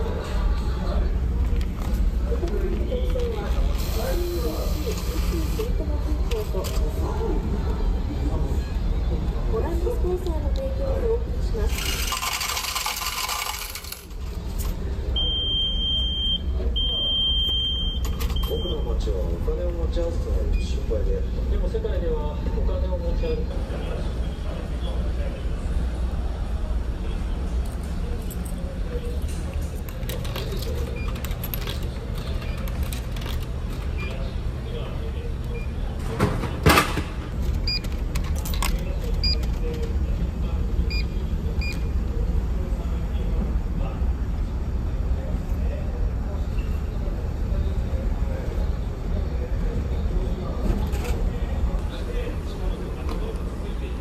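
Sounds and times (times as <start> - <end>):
coins clattering into tray: 11.7 - 14.1
coins clinking into coin slot: 11.7 - 14.7, 29.9 - 33.9.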